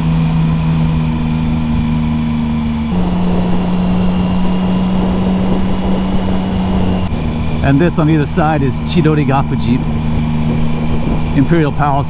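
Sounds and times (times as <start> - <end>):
motorcycle engine running: 0.0 - 12.0
wind and road noise: 0.0 - 12.0.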